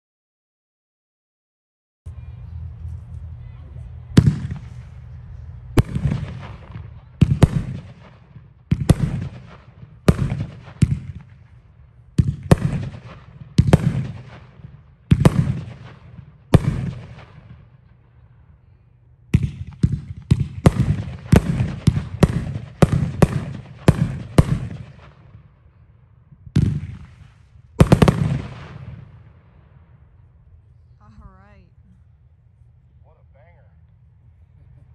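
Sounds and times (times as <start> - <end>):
firework cake shots echoing: 4.1 - 18.0, 19.3 - 25.6, 26.5 - 30.1.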